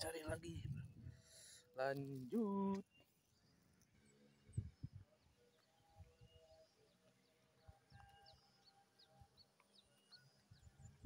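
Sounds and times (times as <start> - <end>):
faint bird chirps: 2.6 - 11.0.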